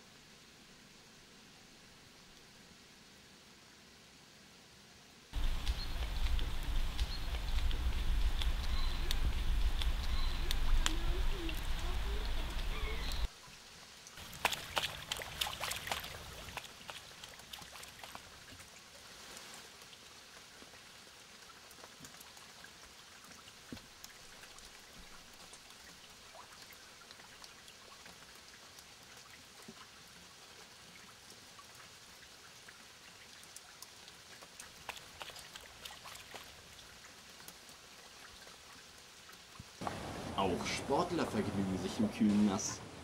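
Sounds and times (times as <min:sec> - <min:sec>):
faint patter of water: 0:05.3 - 0:43.0
deer splashing through water: 0:05.4 - 0:13.3, 0:14.2 - 0:19.2, 0:34.4 - 0:37.2, 0:39.8 - 0:41.8.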